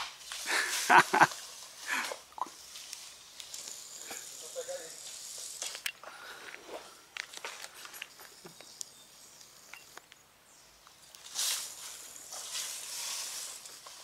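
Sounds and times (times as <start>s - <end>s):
leaves rustling as vine pulled: 0.0s - 5.8s, 11.0s - 14.0s
footsteps in dry leaf litter: 0.1s - 5.8s, 11.1s - 14.0s.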